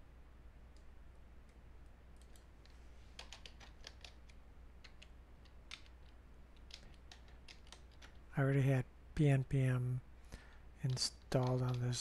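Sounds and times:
low steady hum: 0.0s - 12.0s
keyboard typing: 2.2s - 8.3s, 10.8s - 12.0s.

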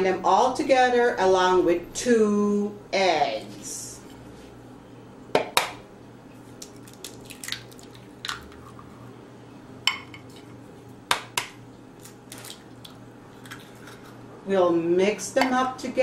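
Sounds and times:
eggs cracking against a bowl: 6.5s - 8.9s.

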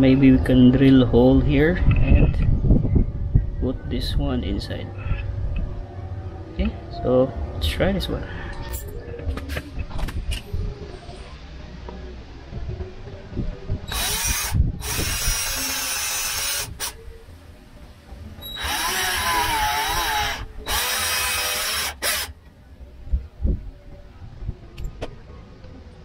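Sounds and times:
cordless drill boring into plastic: 18.6s - 22.3s.

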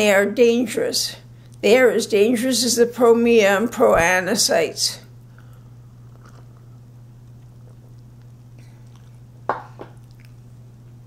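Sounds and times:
steady low hum: 0.0s - 11.0s
person sipping and swallowing: 5.3s - 10.5s.

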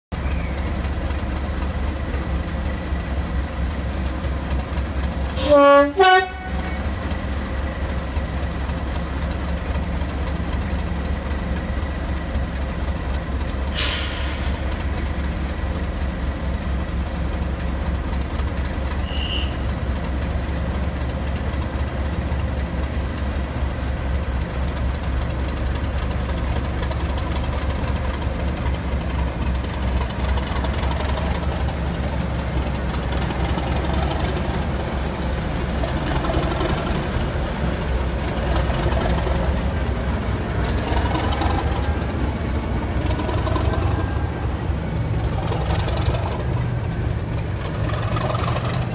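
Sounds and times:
diesel locomotive engine rumbling: 0.1s - 48.9s
two-tone locomotive horn: 5.4s - 6.9s, 19.0s - 19.7s
short hiss: 13.7s - 14.6s.

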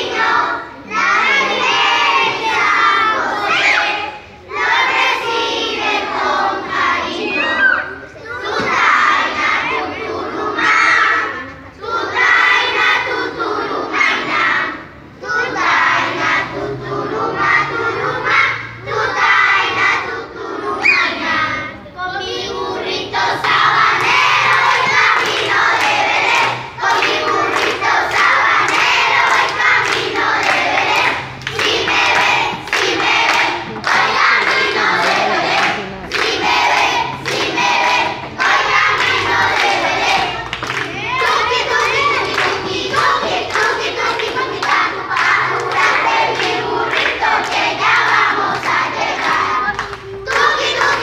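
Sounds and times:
children singing loudly: 0.0s - 51.0s
steady beat of sharp strokes: 22.5s - 51.0s.

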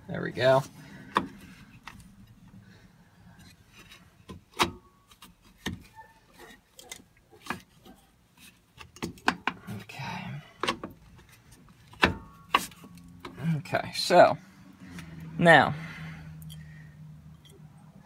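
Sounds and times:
metal clicks and knocks of brake parts: 8.7s - 9.7s.

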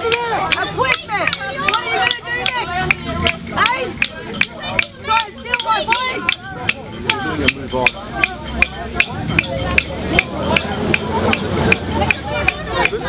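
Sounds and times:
steady rhythmic knocks: 0.0s - 13.0s
voices: 0.0s - 13.0s.

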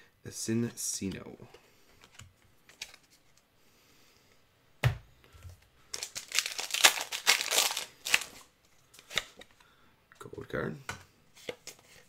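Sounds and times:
foil wrapper crinkling and tearing: 5.9s - 8.5s.

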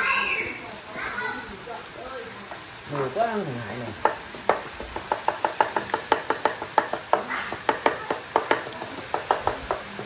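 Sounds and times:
cleaver chopping on wooden board: 4.0s - 10.0s.

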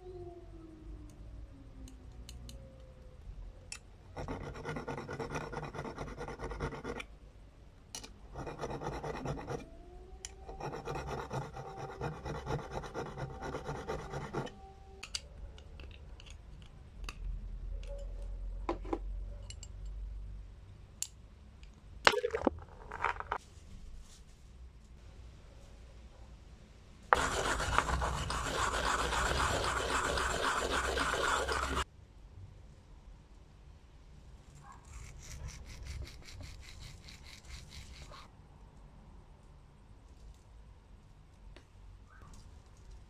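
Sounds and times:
hand file rasping on metal: 8.3s - 9.6s, 10.5s - 14.5s, 27.2s - 31.8s.

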